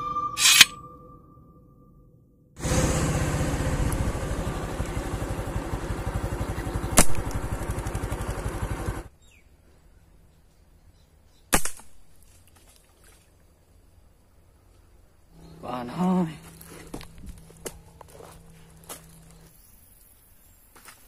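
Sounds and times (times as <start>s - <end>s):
slingshot snap: 0.4s - 0.8s.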